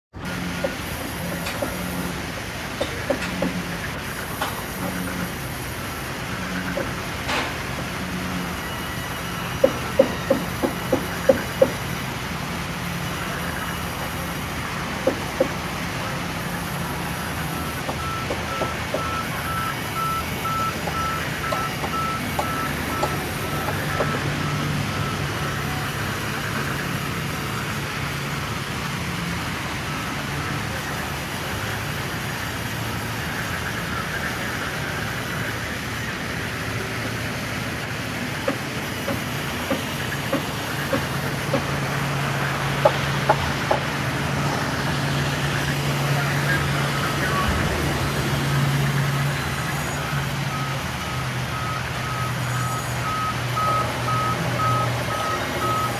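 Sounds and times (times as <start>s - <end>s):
band saw cutting a log: 9.3s - 12.1s.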